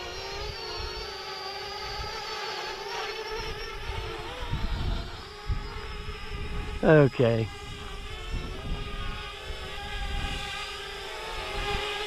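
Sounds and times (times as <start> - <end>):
drone propellers whining: 0.0 - 12.0
wind rumbling on microphone: 3.4 - 12.0.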